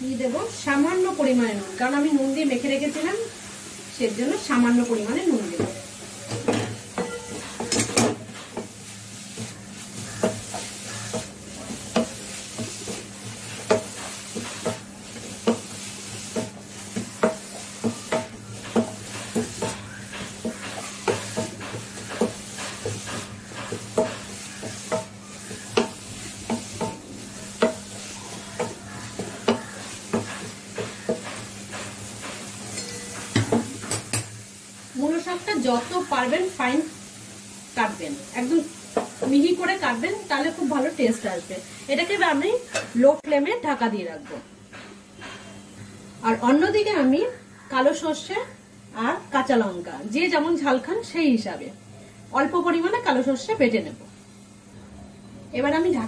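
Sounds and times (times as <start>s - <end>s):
steady sizzle: 0.0s - 56.0s
wooden spatula scraping metal pan: 6.3s - 33.2s.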